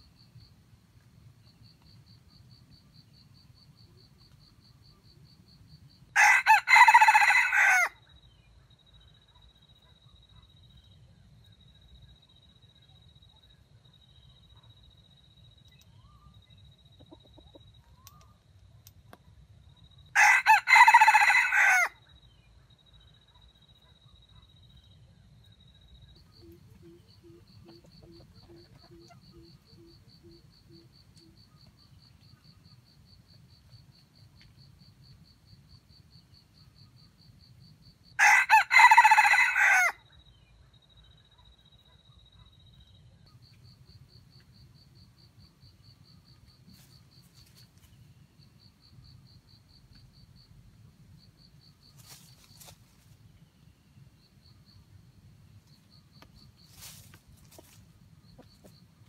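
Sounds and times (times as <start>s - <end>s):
rooster crowing: 6.2s - 8.0s, 20.2s - 22.0s, 38.2s - 40.0s.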